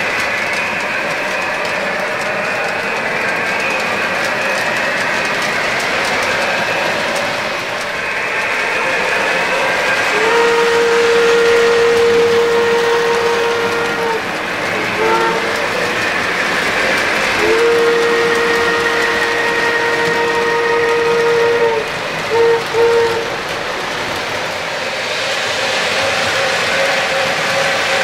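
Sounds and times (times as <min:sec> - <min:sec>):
model train rolling on track: 0:00.0 - 0:28.0
model train whistle: 0:08.9 - 0:16.0, 0:17.3 - 0:23.4.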